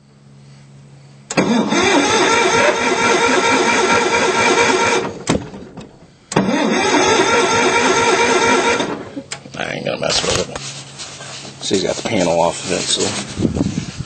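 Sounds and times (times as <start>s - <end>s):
riding mower engine starting: 1.3s - 10.6s.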